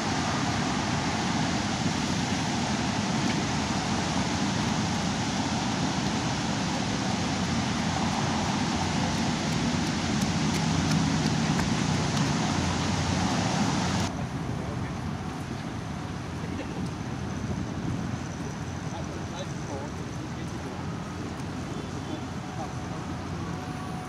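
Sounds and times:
water cannons spraying: 1.1s - 14.1s.

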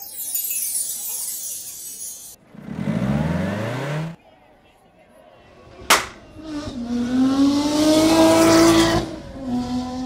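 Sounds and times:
car engine revving: 2.5s - 4.2s, 6.2s - 10.0s.

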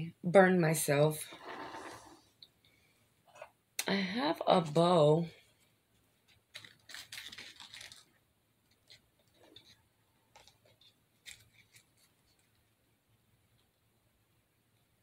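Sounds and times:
rustling of craft decorations: 1.2s - 2.4s, 5.4s - 14.0s.

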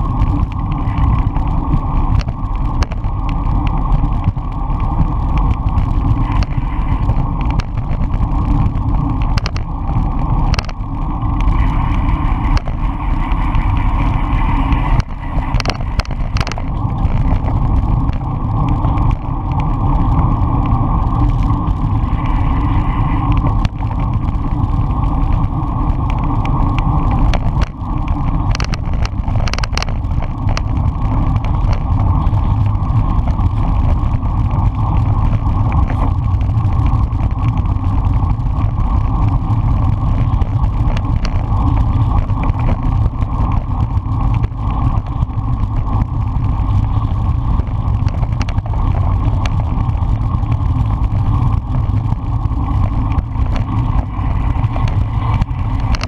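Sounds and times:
tyres on asphalt: 0.0s - 56.0s
wind rumble on microphone: 0.0s - 56.0s
sharp clicks and knocks: 0.2s - 4.4s, 5.0s - 10.8s, 11.4s - 12.8s, 14.8s - 19.2s, 25.4s - 32.0s, 48.0s - 49.7s, 52.8s - 54.0s, 54.8s - 56.0s.

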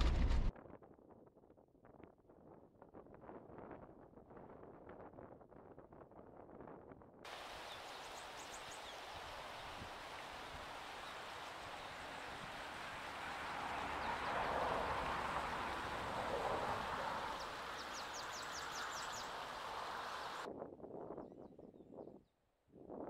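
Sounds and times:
wind blowing through trees: 7.3s - 20.5s.

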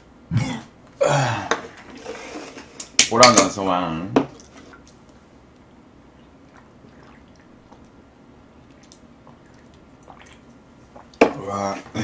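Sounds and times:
person swallowing a drink: 6.2s - 7.9s, 8.6s - 11.4s.

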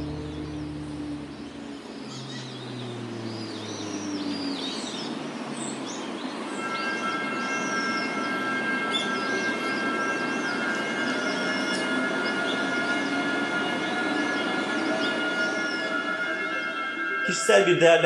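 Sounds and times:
small birds chirping: 0.0s - 7.0s
faint music: 0.0s - 18.0s
steady outdoor rumble: 0.0s - 18.0s
train high-pitched tones: 0.0s - 18.0s.

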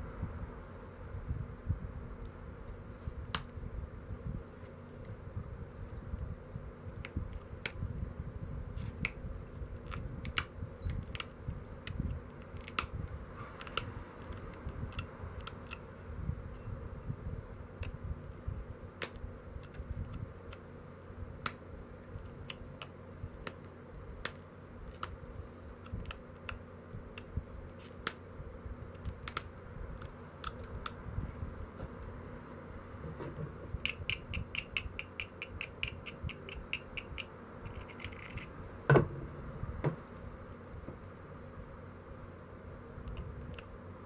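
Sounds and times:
stone abrading ticks: 33.8s - 38.2s.

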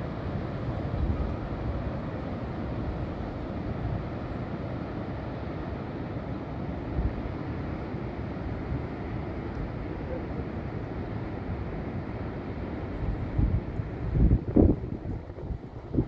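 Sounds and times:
ocean surf breaking: 0.0s - 16.0s
wind buffeting microphone: 12.9s - 16.0s.

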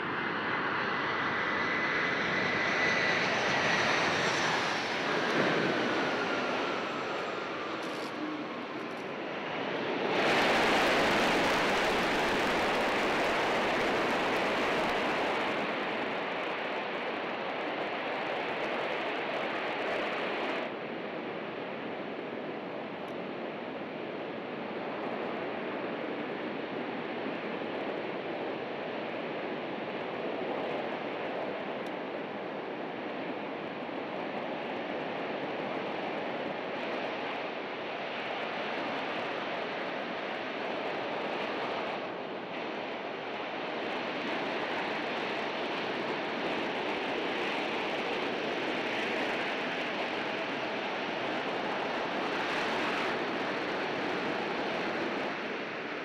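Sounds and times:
jet engines rushing: 0.0s - 20.8s.

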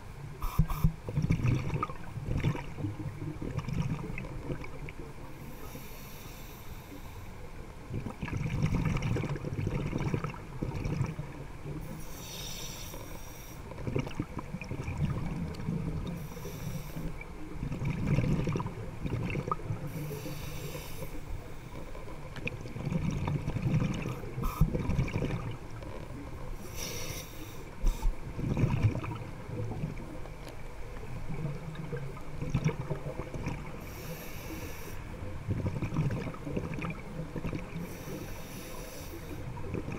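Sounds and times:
exhale bubbling rumble: 0.0s - 5.2s, 7.8s - 11.9s, 13.7s - 27.0s, 27.8s - 34.4s, 35.1s - 39.9s
regulator inhale hiss: 0.4s - 1.0s, 5.3s - 7.4s, 11.8s - 13.8s, 16.1s - 17.3s, 19.9s - 22.1s, 24.2s - 24.8s, 26.6s - 28.3s, 33.8s - 35.2s, 37.8s - 39.6s.

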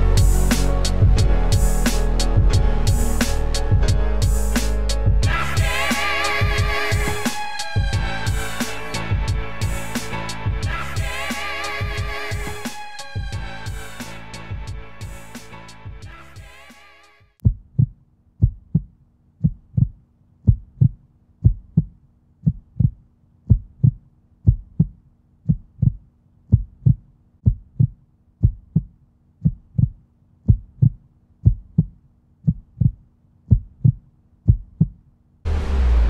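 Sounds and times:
heartbeat thumps: 0.0s - 7.2s, 7.8s - 11.2s, 11.8s - 12.6s, 13.2s - 13.9s, 17.4s - 35.0s.

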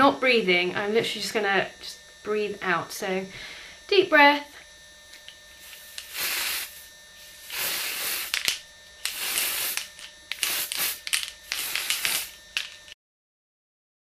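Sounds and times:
aerosol can spraying: 5.1s - 13.0s.

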